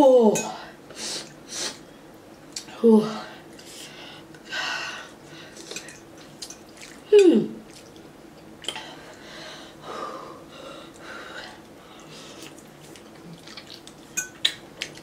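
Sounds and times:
quiet breathing: 0:03.1 - 0:05.9, 0:08.8 - 0:12.6.

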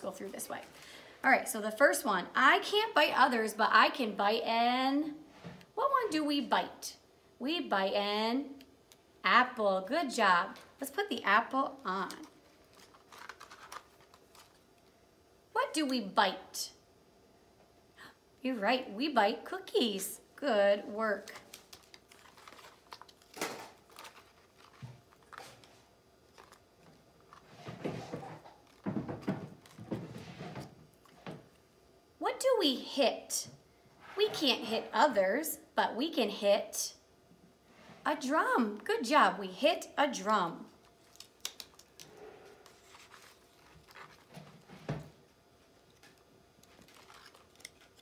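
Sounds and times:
paper cards rustling: 0:11.7 - 0:14.7, 0:21.1 - 0:28.9, 0:40.9 - 0:44.7, 0:45.9 - 0:48.0.

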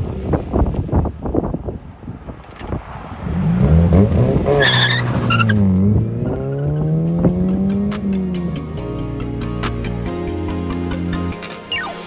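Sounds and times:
car engine accelerating hard: 0:02.7 - 0:09.0.

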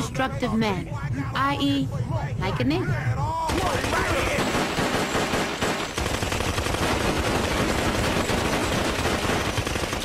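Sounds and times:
cartoon pistols firing rapidly: 0:03.5 - 0:10.0.

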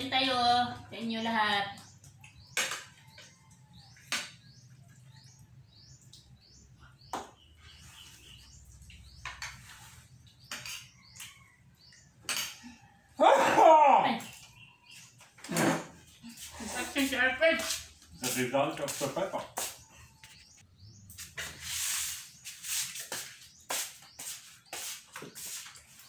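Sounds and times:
small birds chirping: 0:00.0 - 0:13.2, 0:13.9 - 0:26.0
cutlery clicking on plates: 0:12.2 - 0:12.6.

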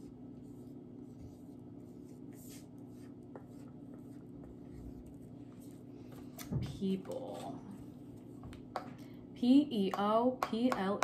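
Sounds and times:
steady low hum: 0:00.0 - 0:11.0
marker scratching on whiteboard: 0:00.4 - 0:05.8.

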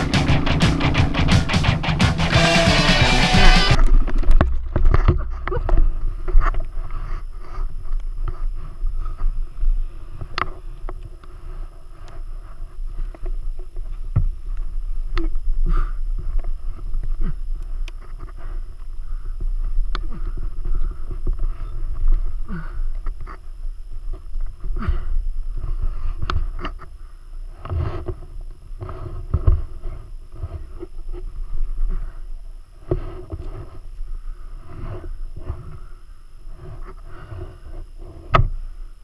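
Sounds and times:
laboured breathing: 0:15.5 - 0:23.6, 0:24.6 - 0:28.2, 0:28.8 - 0:39.0.

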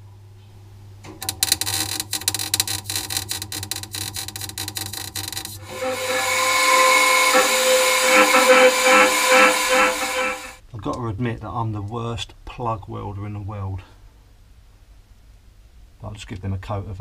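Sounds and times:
welder sputtering crackle: 0:01.2 - 0:10.6
whirring power tool with hiss: 0:01.2 - 0:10.6.

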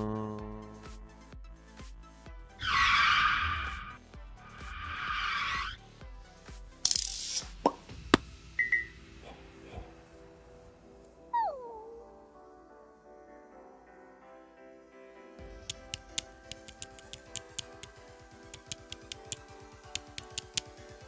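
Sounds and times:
background music: 0:00.0 - 0:21.0
sharp clicks: 0:15.6 - 0:20.8.

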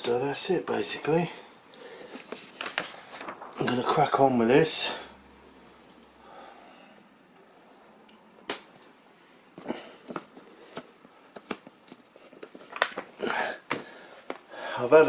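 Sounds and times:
paper pages turning and crinkling: 0:02.1 - 0:04.2, 0:10.0 - 0:13.2.

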